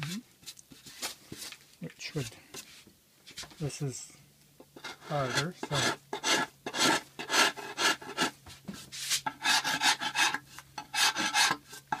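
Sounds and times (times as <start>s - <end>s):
metal rasp scraping stone: 4.8s - 8.4s, 9.2s - 12.0s.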